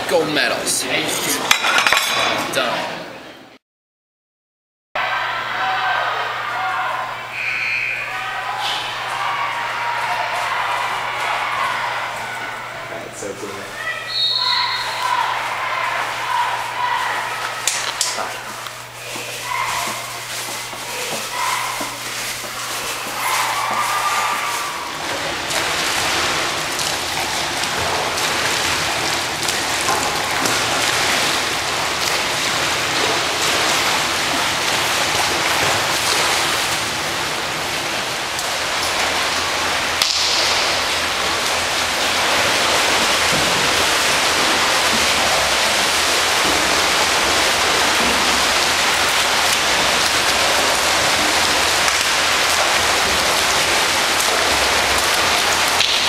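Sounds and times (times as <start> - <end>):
echoing indoor swimming pool din: 0.0 - 3.6, 5.0 - 56.0.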